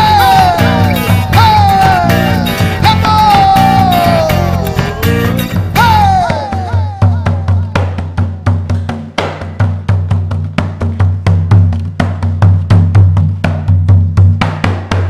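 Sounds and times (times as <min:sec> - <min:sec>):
steady bass line: 0:00.0 - 0:07.0
live band fast percussion: 0:00.0 - 0:15.0.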